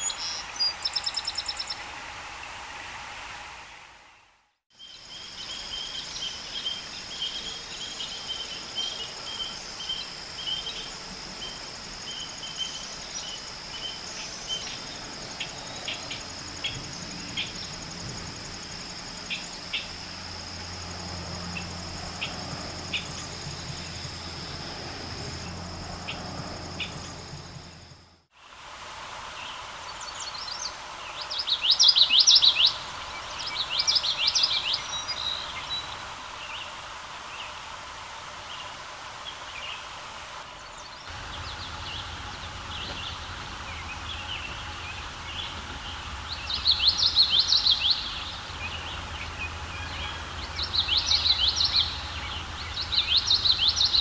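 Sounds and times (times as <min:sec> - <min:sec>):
bird singing repeated phrases: 0:30.0 - 0:35.9, 0:45.3 - 0:54.0.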